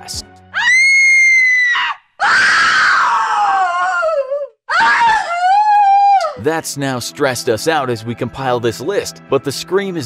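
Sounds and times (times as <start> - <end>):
woman screaming: 0.6 - 6.4.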